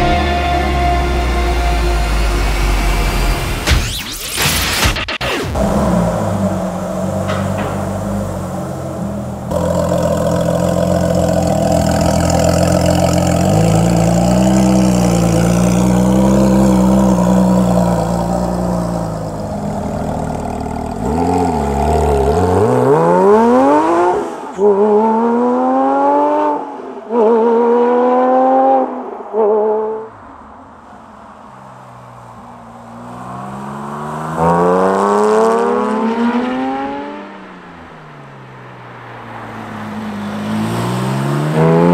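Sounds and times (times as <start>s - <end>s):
car accelerating through gears: 8.1s - 30.1s, 32.9s - 37.5s, 39.4s - 41.9s.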